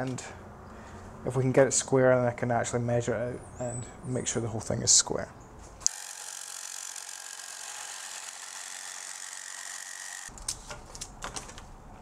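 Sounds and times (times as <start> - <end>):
jigsaw cutting metal sheet: 5.9 - 10.3.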